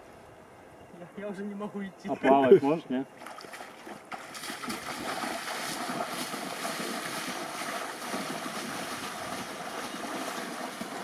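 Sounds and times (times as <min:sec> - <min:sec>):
splashing through water: 0:03.2 - 0:11.0.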